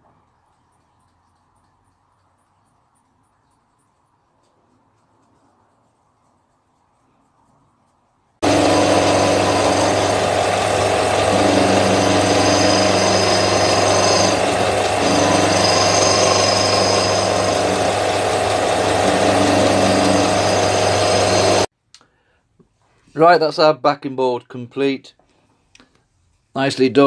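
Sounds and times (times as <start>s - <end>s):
disc sander sanding wood: 8.4s - 21.7s.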